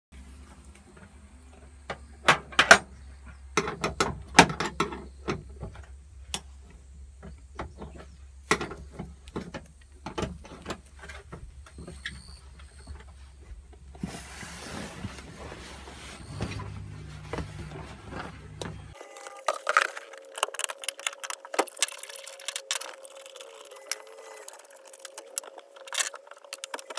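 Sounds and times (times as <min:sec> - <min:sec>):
steady low hum: 0:12.5 - 0:19.0.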